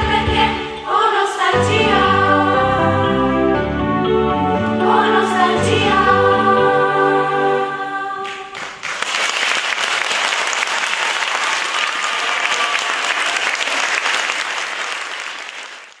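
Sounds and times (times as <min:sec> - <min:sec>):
choir holding final chord: 0:00.0 - 0:08.5
audience applauding: 0:08.2 - 0:16.0.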